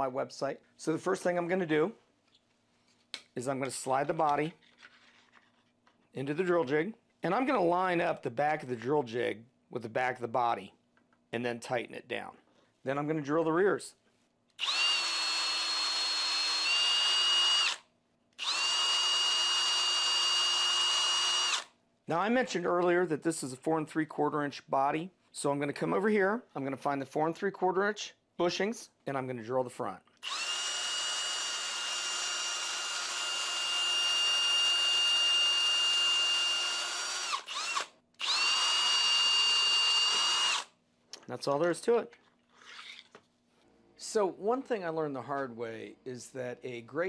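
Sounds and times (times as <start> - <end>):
cordless drill boring wood: 14.6 - 17.8, 18.4 - 21.7, 30.2 - 40.7.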